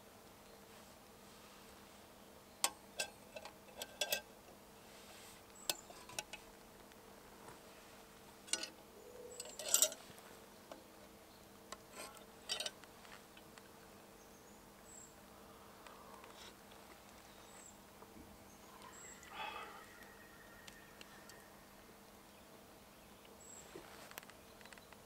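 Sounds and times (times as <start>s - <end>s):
utensil clinking on metal cookware: 2.6s - 4.3s, 8.5s - 10.0s, 11.9s - 12.8s.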